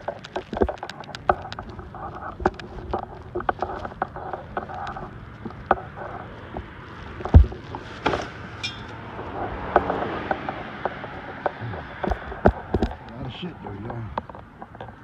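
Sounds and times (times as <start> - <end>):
debris scraping and rustling: 0.0 - 15.0
metallic rattle: 7.6 - 9.0.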